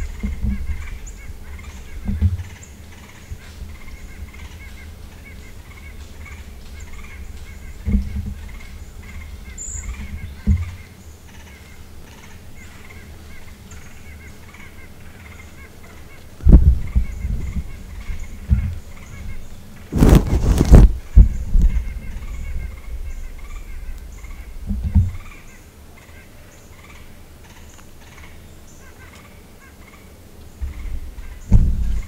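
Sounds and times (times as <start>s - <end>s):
dull low thumps: 0.0s - 2.6s, 3.2s - 10.9s, 16.4s - 25.4s, 30.6s - 32.0s
faint bird calls: 0.0s - 32.0s.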